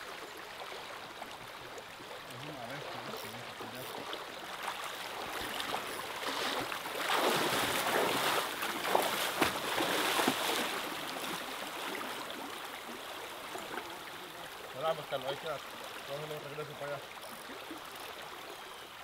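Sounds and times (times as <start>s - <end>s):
river water rushing: 0.0s - 19.0s
water splashes: 0.0s - 19.0s.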